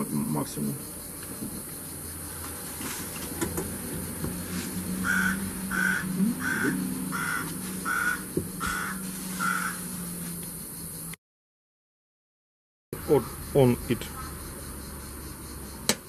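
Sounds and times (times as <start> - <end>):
bird calling: 4.1 - 11.0, 13.0 - 15.6.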